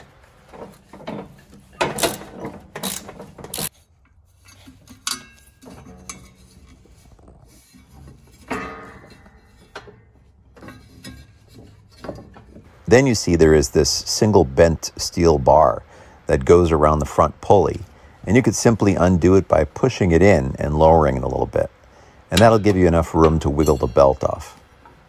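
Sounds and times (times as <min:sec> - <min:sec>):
quiet handling sounds: 0:00.0 - 0:19.4
metal tool clicks and knocks: 0:04.8 - 0:06.5.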